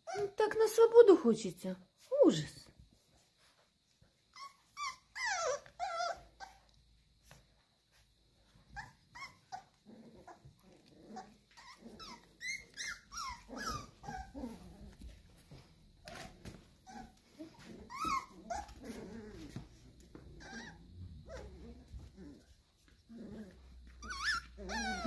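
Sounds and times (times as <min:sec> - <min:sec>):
puppies whining: 0:00.0 - 0:00.4, 0:04.1 - 0:07.4, 0:08.5 - 0:25.0
puppies yipping and squeaking: 0:00.0 - 0:00.4, 0:04.3 - 0:06.8, 0:08.6 - 0:22.4, 0:23.5 - 0:25.0.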